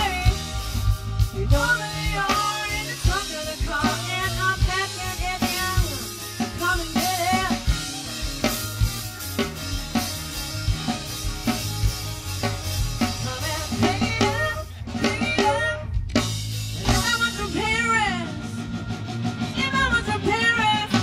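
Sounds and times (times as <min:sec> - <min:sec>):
live rock band playing: 0:00.0 - 0:21.0.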